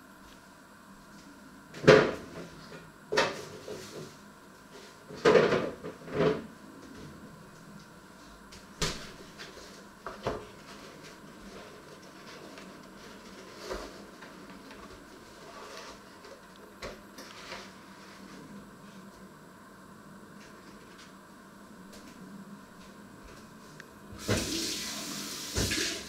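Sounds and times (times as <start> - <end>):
kitchen items knocking and clunking: 5.1 - 6.5.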